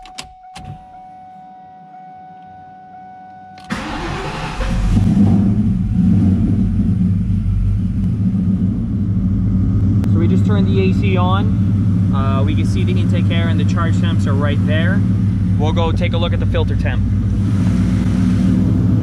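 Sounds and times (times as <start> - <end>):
starter motor cranking: 3.6 - 5.2
car engine idling loudly: 3.7 - 19.0.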